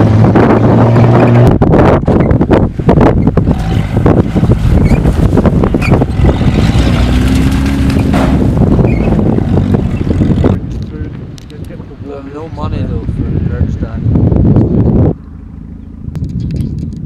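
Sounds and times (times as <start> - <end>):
car driving over gravel: 0.0 - 11.8
wind noise on microphone: 0.0 - 17.0.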